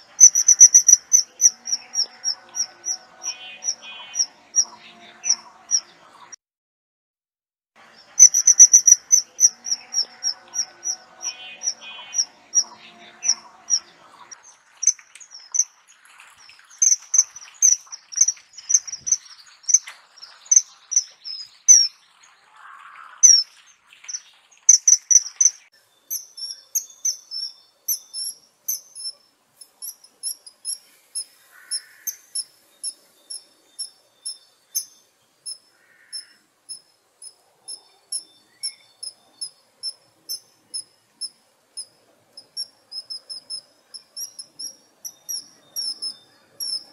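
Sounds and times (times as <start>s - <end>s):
kingfisher calling: 0.0s - 5.9s, 8.1s - 15.8s, 16.8s - 22.0s, 23.2s - 26.4s, 31.2s - 33.0s, 35.5s - 36.3s, 42.4s - 46.9s.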